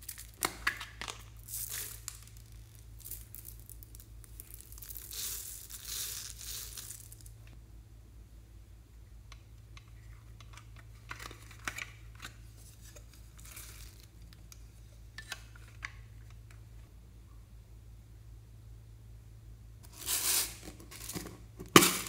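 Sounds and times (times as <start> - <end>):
glitter dropping onto foam beads: 0.0 - 7.6, 19.9 - 22.0.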